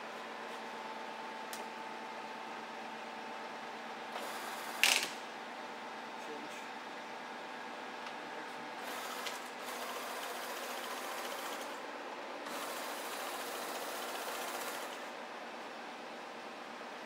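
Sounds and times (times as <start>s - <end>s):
lathe gear train whirring: 8.8s - 11.8s, 12.4s - 15.1s.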